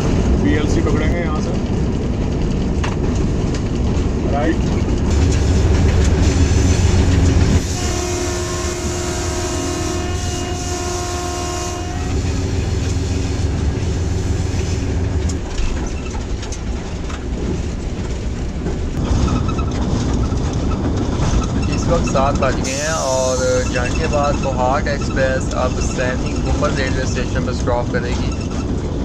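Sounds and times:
locomotive engine and wheels rumbling: 0.0s - 29.0s
locomotive horn blast: 5.4s - 14.9s.

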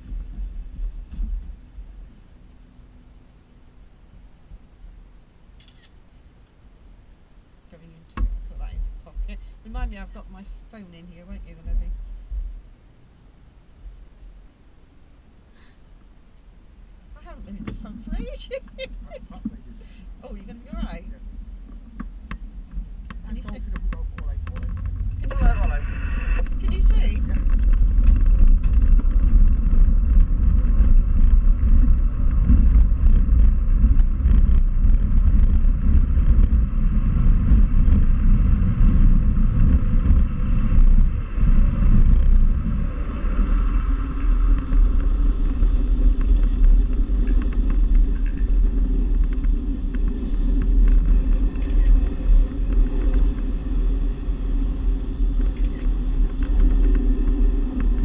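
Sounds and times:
low cockpit rumble: 0.0s - 58.0s.

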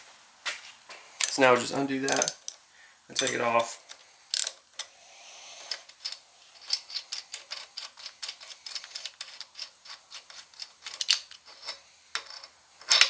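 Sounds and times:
ratchet wrench clicking: 2.1s - 2.6s, 4.3s - 4.6s
metal-on-metal clicks: 2.1s - 4.9s, 5.7s - 13.0s.

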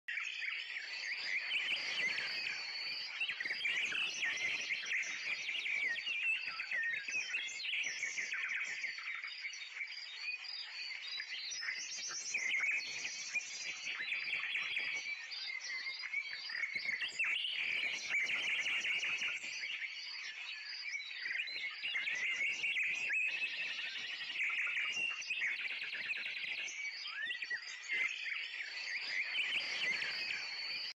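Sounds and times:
small birds chirping: 0.1s - 30.9s.

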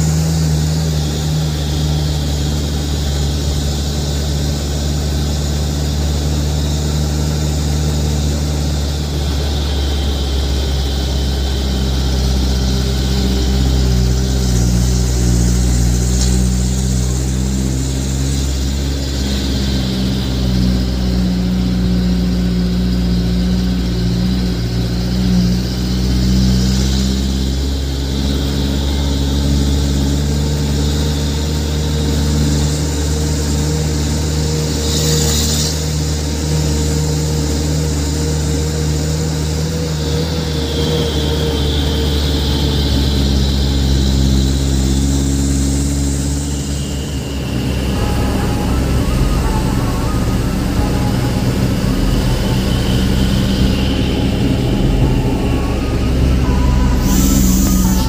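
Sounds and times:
truck engine running: 0.0s - 58.0s.

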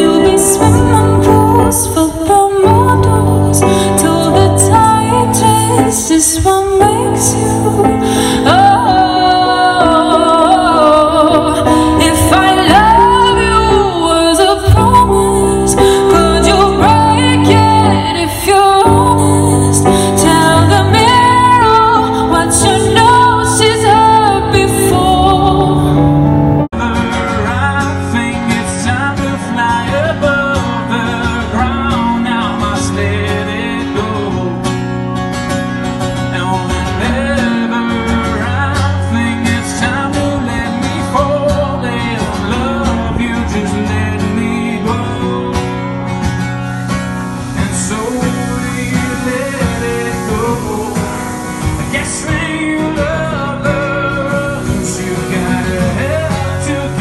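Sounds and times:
man singing: 0.0s - 7.4s, 26.6s - 34.9s, 36.2s - 45.9s, 47.5s - 57.0s
woman singing: 0.0s - 26.3s
acoustic guitar strumming: 0.0s - 57.0s
keyboard chords: 0.0s - 57.0s.

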